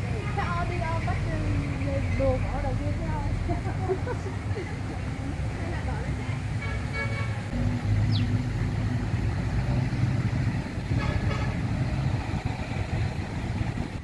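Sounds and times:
steady low rumble: 0:07.4 - 0:14.0.

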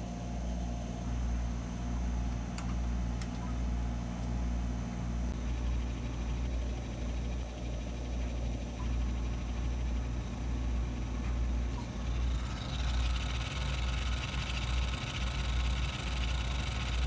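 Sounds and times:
low hum of spinning drive: 0:00.0 - 0:17.0
hard drive heads seeking: 0:05.4 - 0:17.0.

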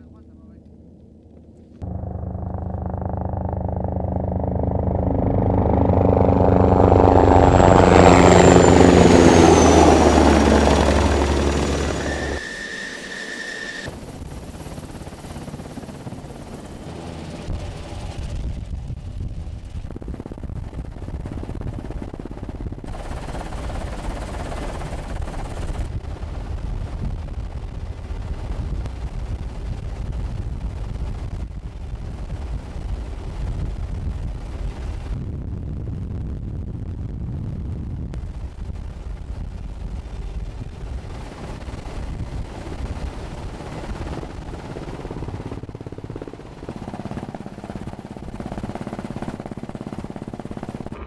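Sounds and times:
helicopter rotor pulsing: 0:00.0 - 0:35.9, 0:38.2 - 0:51.0
helicopter flying low: 0:00.0 - 0:51.0
rotor blade beat: 0:01.8 - 0:09.4.

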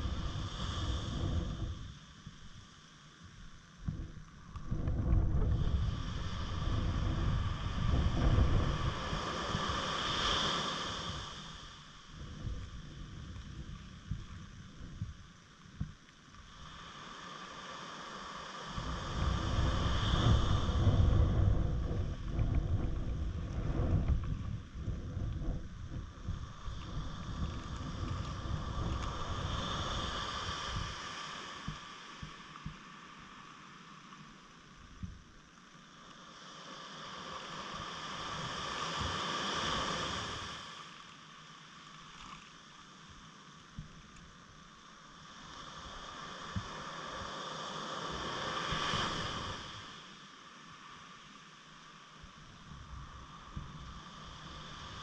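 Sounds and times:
wind buffeting microphone: 0:00.0 - 0:02.0, 0:03.8 - 0:10.2, 0:12.2 - 0:15.9, 0:18.8 - 0:31.0
surf washing: 0:00.0 - 0:43.5, 0:44.6 - 0:55.0
steady high-pitched hum: 0:00.0 - 0:55.0.

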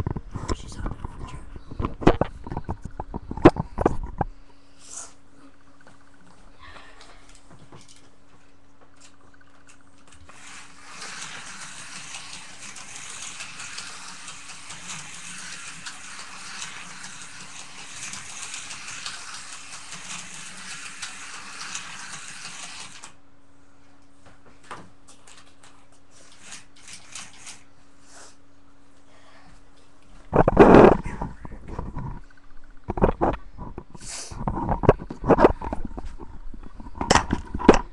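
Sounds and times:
slot car rattling whir: 0:10.1 - 0:23.2, 0:26.3 - 0:27.6.

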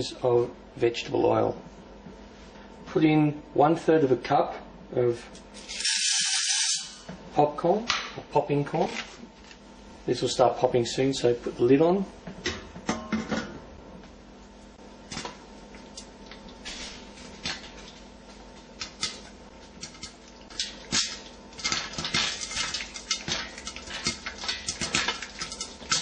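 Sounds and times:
popcorn popping: 0:17.2 - 0:26.0.

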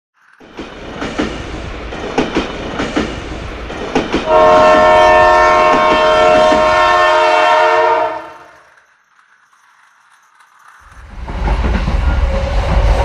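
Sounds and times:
toy train wheels clicking: 0:00.2 - 0:11.8
toy train horn chord: 0:04.3 - 0:08.7.

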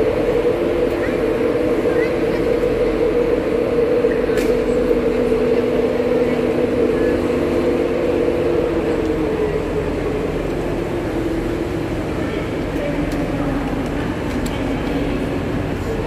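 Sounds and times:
train idling drone: 0:00.0 - 0:16.0.

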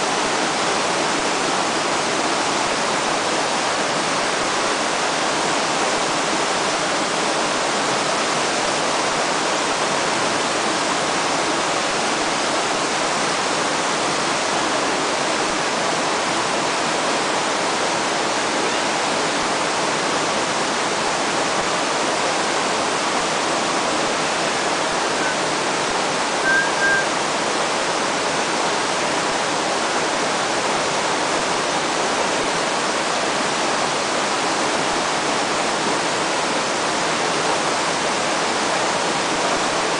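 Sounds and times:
river current rushing: 0:00.0 - 0:39.9
short high chirps: 0:26.4 - 0:27.2.

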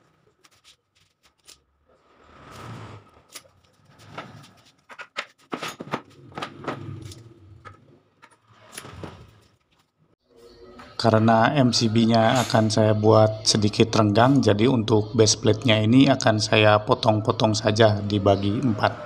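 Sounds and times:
plywood scraping across wooden table: 0:02.0 - 0:04.8.

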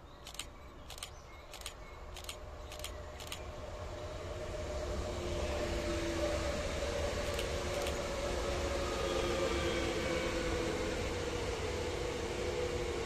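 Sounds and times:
faint clicks: 0:00.2 - 0:03.5, 0:07.2 - 0:08.0
train wheels rumbling on rail: 0:00.2 - 0:13.0.

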